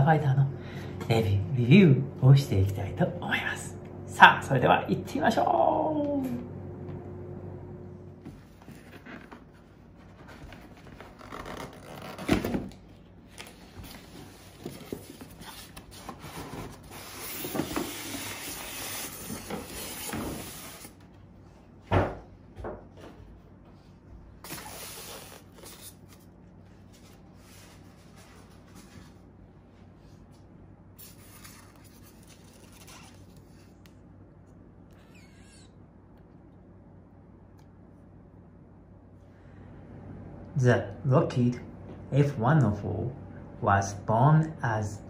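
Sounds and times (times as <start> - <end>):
cardboard and styrofoam handling: 13.3 - 20.9.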